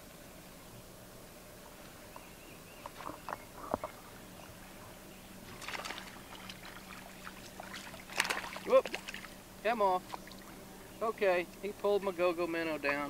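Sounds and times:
low steady hum: 0.0s - 13.0s
water lapping against boat hull: 2.8s - 11.8s
water splash: 5.5s - 9.4s.

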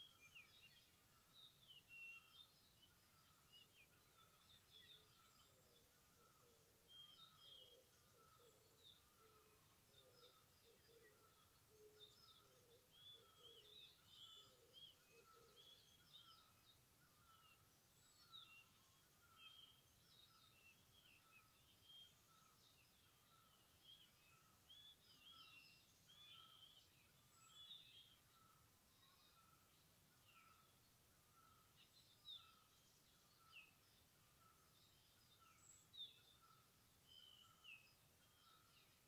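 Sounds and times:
birds chirping: 0.0s - 39.0s.

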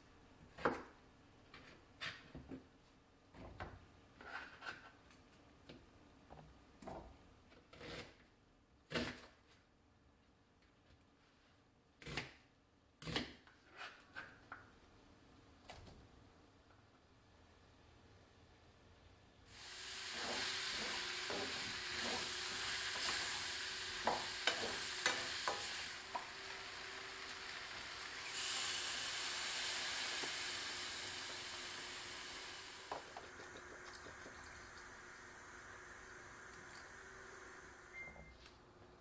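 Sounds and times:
water pouring into a pan: 19.5s - 37.7s
vegetables sizzling in a frying pan: 19.5s - 38.0s.

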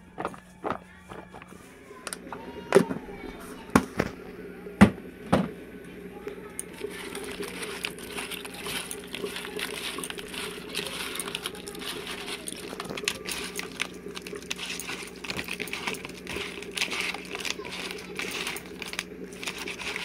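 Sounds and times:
steady low hum: 0.0s - 20.0s
hand kneading wet food: 6.6s - 20.0s.

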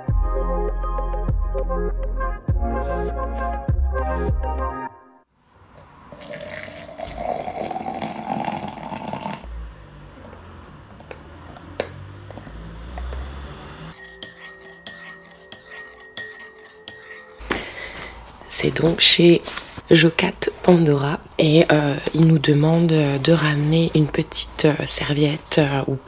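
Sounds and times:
intro music: 0.0s - 5.2s
coffee pouring into a mug: 6.1s - 9.5s
teaspoon clinking against mug: 14.0s - 17.7s.

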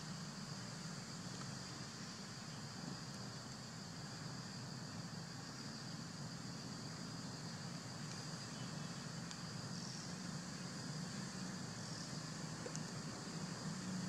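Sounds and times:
high-pitched insect drone: 0.0s - 14.0s
faint ticks: 1.2s - 1.8s, 2.8s - 3.8s, 7.9s - 14.0s.

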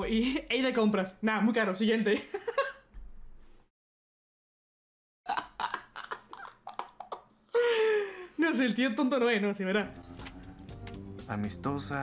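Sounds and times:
man laughing: 5.3s - 8.4s.

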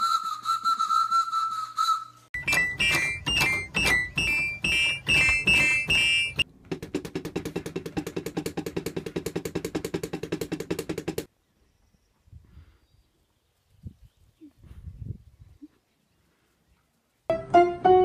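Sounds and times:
electronic keyboard notes: 2.4s - 6.4s, 17.3s - 18.0s
drumsticks hitting drum pad: 2.5s - 11.3s.

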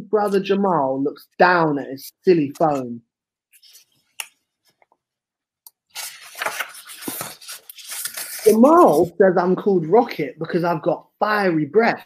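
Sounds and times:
paper pages rustling: 3.5s - 5.0s, 5.8s - 9.2s.

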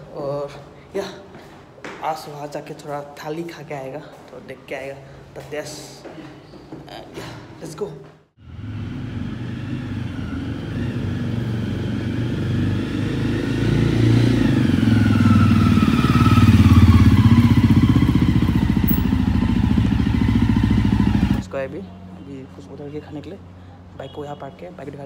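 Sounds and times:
motorcycle engine passing by: 8.4s - 21.8s.

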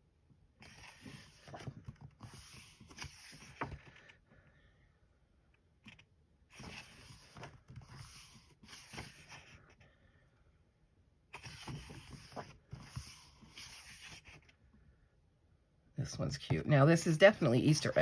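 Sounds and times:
paper rustling: 0.6s - 4.2s, 5.9s - 9.6s, 11.3s - 14.5s.

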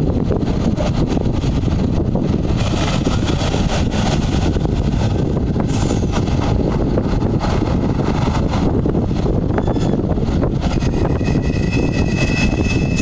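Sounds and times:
truck diesel engine under load: 0.0s - 11.0s
wind buffeting microphone: 0.0s - 13.0s.

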